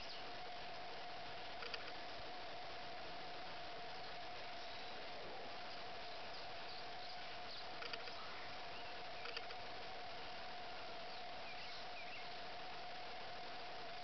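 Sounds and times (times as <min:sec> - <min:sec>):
faint bird chirps: 0:00.0 - 0:00.4, 0:03.8 - 0:13.0
steady even hum: 0:00.0 - 0:14.0
steady hiss: 0:00.0 - 0:14.0
soft clicks: 0:01.6 - 0:02.0, 0:09.2 - 0:09.6.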